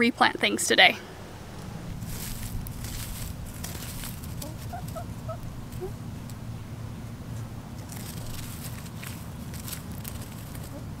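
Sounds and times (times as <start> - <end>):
rustling of wood-chip mulch: 1.5 - 6.0, 7.7 - 11.0
chickens clucking softly: 4.4 - 6.0.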